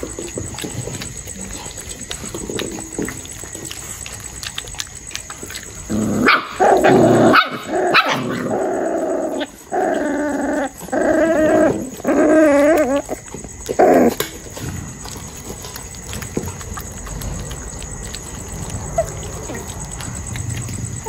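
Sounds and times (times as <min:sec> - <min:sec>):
puppies growling: 0:00.0 - 0:21.0
sharp puppy barks: 0:06.2 - 0:08.4.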